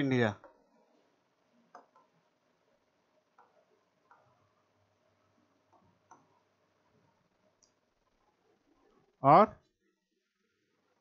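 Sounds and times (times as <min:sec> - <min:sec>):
pen tapping and scraping on screen: 0:00.4 - 0:01.0, 0:01.6 - 0:02.3, 0:03.2 - 0:04.5.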